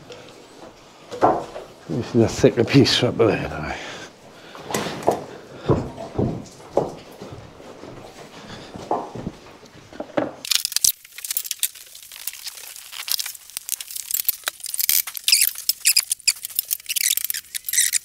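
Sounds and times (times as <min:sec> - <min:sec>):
plastic sheeting crinkling: 0:10.4 - 0:18.0.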